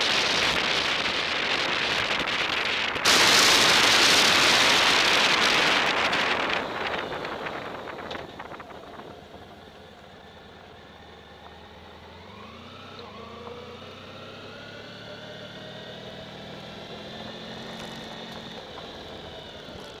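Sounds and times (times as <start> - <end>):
wind noise: 0.0 - 9.6
motorcycle engine running: 0.0 - 20.0.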